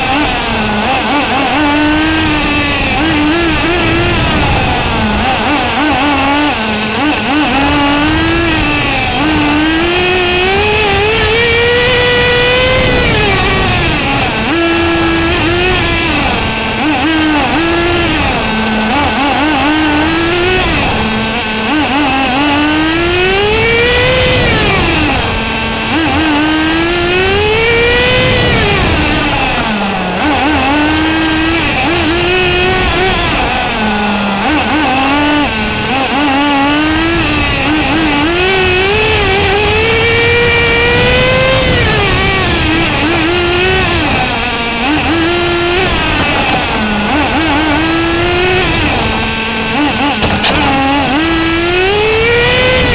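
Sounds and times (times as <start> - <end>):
radio-control car engine revving: 0.0 - 52.9.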